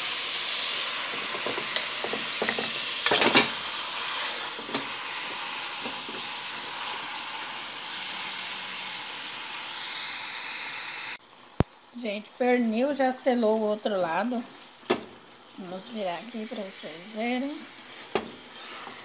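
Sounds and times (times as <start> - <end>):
meat sizzling in fat: 0.0 - 19.0.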